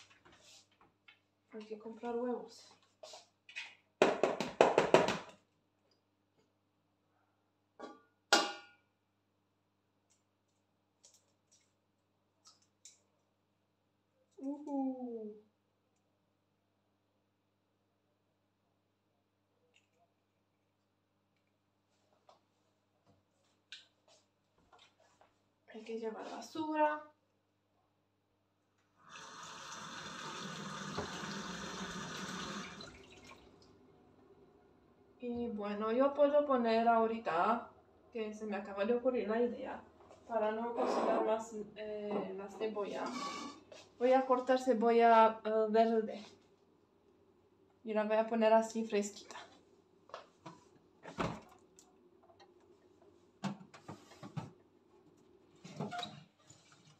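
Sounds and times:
water running from kitchen tap: 0:29.0 - 0:33.6.

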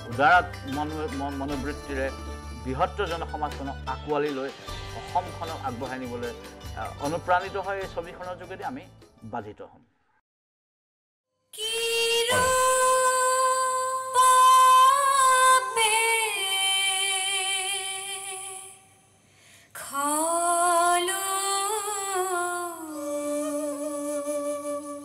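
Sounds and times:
person singing slow melody: 0:12.1 - 0:14.1.

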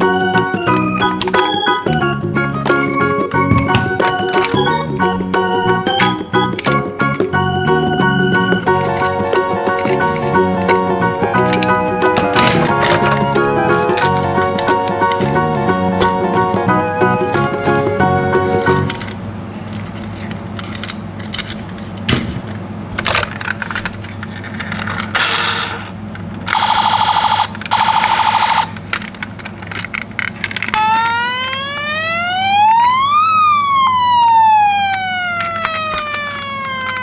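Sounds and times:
toy cars clicking and knocking: 0:00.2 - 0:01.7, 0:11.4 - 0:15.3, 0:18.6 - 0:21.8, 0:23.0 - 0:25.9, 0:27.6 - 0:31.6, 0:34.9 - 0:37.0
toy electronic siren wail: 0:26.5 - 0:28.7, 0:30.7 - 0:37.0.

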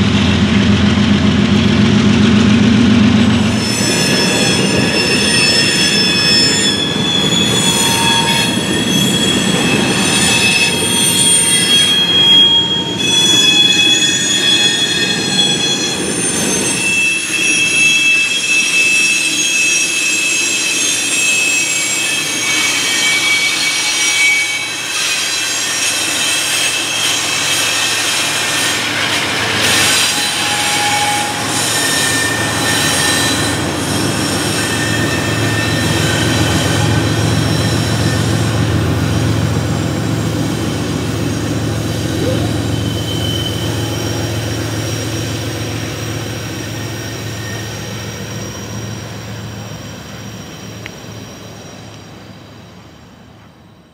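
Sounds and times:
rolling rumble: 0:00.0 - 0:07.7
diesel locomotive rumble: 0:00.0 - 0:19.5, 0:25.9 - 0:53.9
steel wheels squealing: 0:01.7 - 0:53.9.

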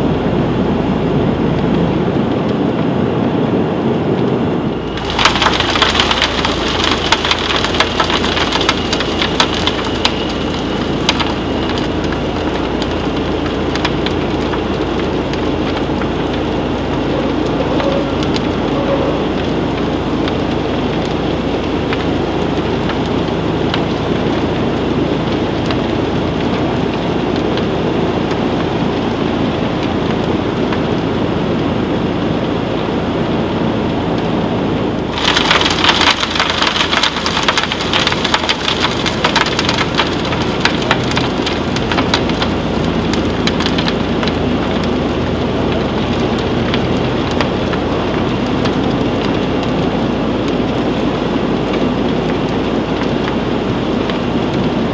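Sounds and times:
machine rumble with low hum: 0:00.0 - 0:54.9.

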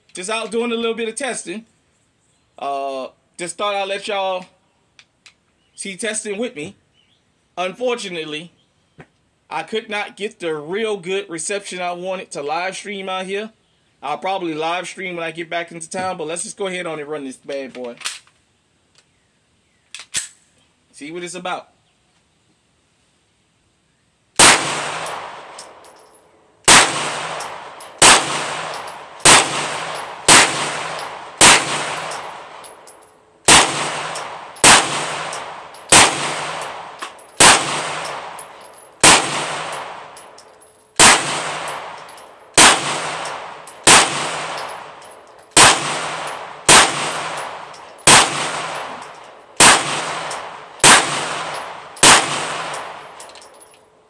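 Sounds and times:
pistol shots echoing: 0:24.4 - 0:25.8, 0:26.7 - 0:32.9, 0:33.5 - 0:40.4, 0:41.0 - 0:53.2.

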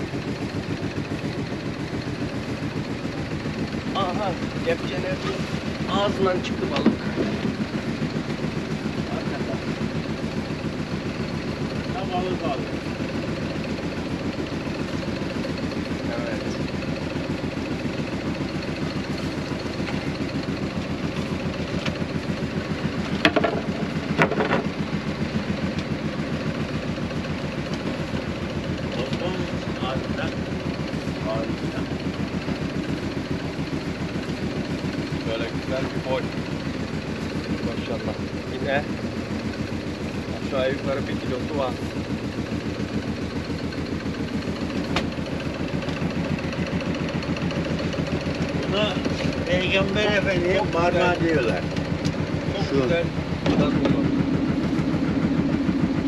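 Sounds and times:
boat engine idling: 0:00.0 - 0:56.0
sharp knocks: 0:23.2 - 0:24.8.

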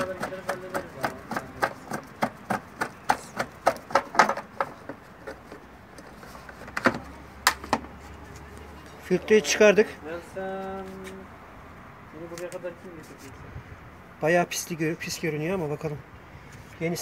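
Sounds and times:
hand tools clicking and tapping: 0:00.0 - 0:07.9.

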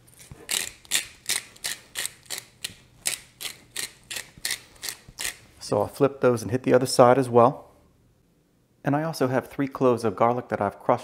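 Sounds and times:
pepper mill grinding: 0:00.1 - 0:05.4.

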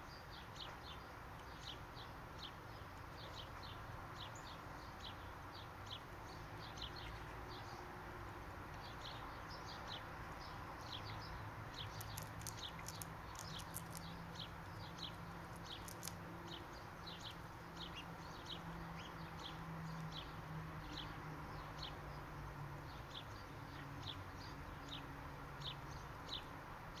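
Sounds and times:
small bird chirping: 0:00.0 - 0:07.8, 0:08.7 - 0:22.2.

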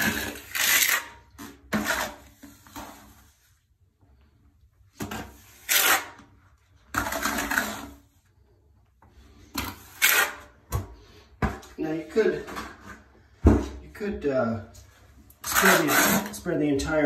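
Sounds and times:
trowel scraping mortar: 0:00.0 - 0:03.4, 0:06.9 - 0:08.1, 0:09.6 - 0:10.6, 0:15.3 - 0:16.9.

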